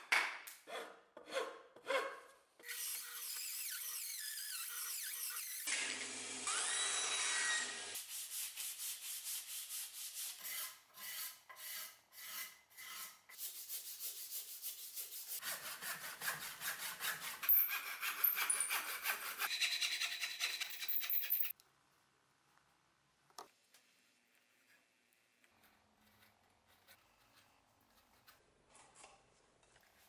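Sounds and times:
bandsaw cutting wood: 2.7 - 8.0
hand saw cutting wood: 10.3 - 13.7, 14.7 - 21.0
hand tool scraping wood: 10.3 - 21.0.

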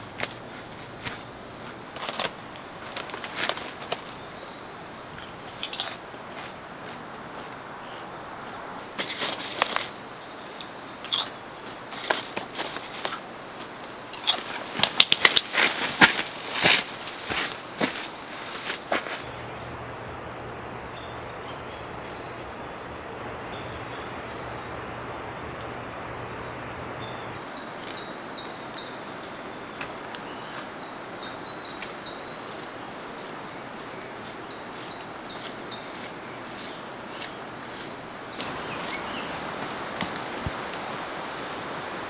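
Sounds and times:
birds singing: 0.0 - 11.8, 19.2 - 39.6
steady hiss: 14.4 - 27.5, 38.4 - 42.0.

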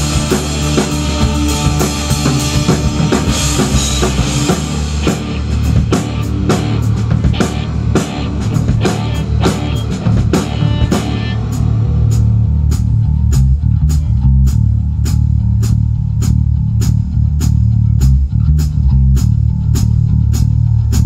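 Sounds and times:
electric guitars: 0.0 - 14.0
bass guitar: 0.0 - 21.0
drum kit beat: 0.0 - 21.0.

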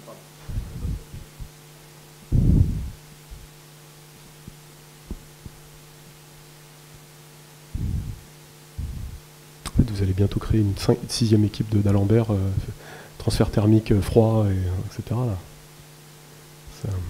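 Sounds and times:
electrical hum: 0.0 - 17.0
dull low thumps: 0.4 - 1.6, 2.2 - 3.6, 4.2 - 6.0, 7.7 - 9.9.

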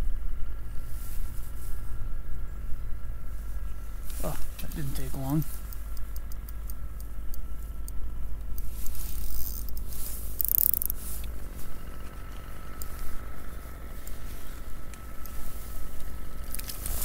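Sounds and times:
faint high whine: 0.0 - 17.0
small clicks: 5.6 - 13.2
fishing reel cranking: 9.1 - 11.0.

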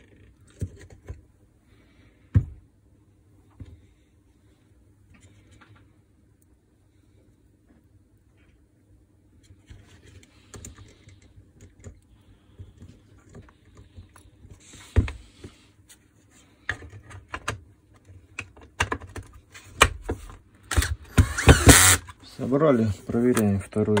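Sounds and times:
cordless screwdriver running: 20.7 - 22.1.

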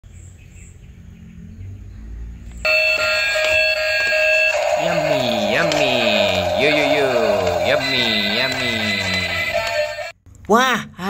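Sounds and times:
electronic jingle: 2.7 - 10.1
sliding voice-like sound: 4.6 - 9.9.

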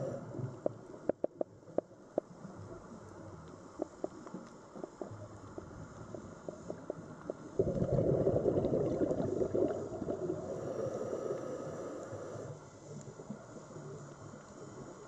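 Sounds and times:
faint clicks: 0.4 - 7.6, 12.0 - 15.0
regulator bubbles gurgling underwater: 5.2 - 15.0.

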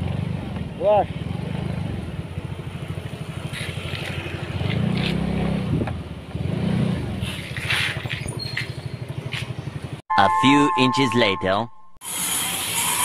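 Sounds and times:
motorcycle engine running: 0.0 - 6.4, 7.0 - 10.0.

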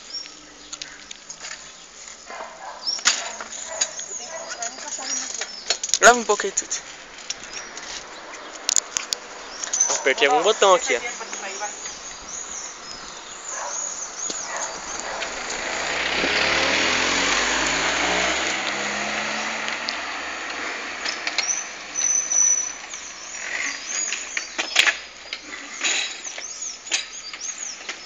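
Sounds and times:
car passing by: 13.4 - 23.7.

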